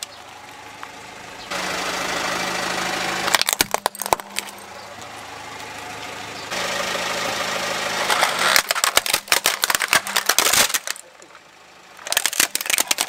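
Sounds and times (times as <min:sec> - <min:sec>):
car engine idling: 0:00.0 - 0:13.0
plastic cracking and snapping: 0:03.3 - 0:04.5, 0:08.1 - 0:11.1, 0:12.0 - 0:13.0.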